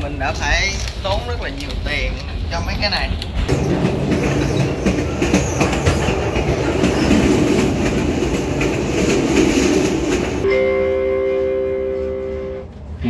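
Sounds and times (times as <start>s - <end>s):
train rushing rumble: 0.0s - 13.0s
wheels clattering on rails: 0.2s - 10.5s.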